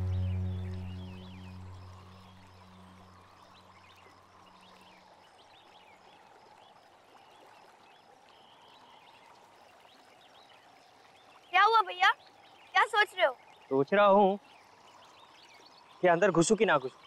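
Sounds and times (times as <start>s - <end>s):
background music: 0.0s - 3.1s
small birds chirping: 0.0s - 17.0s.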